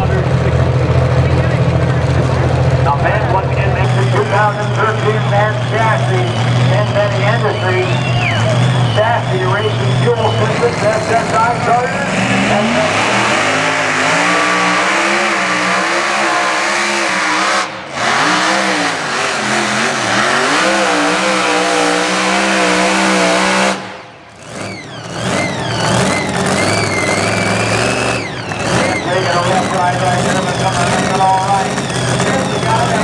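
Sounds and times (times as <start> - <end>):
tractor engine at full throttle: 0.0 - 33.0.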